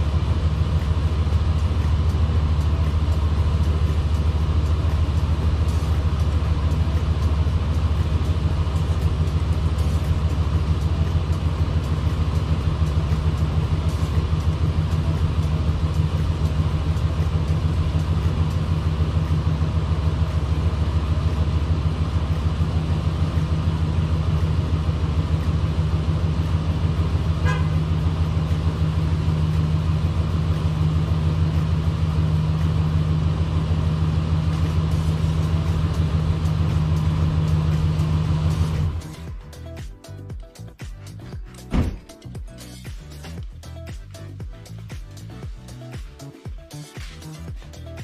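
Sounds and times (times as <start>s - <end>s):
pickup truck engine idling: 0.0s - 48.0s.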